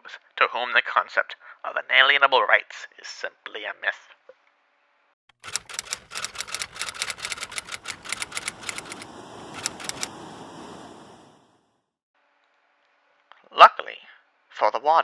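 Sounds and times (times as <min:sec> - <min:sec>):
typewriter keys striking: 0:05.4 - 0:09.0.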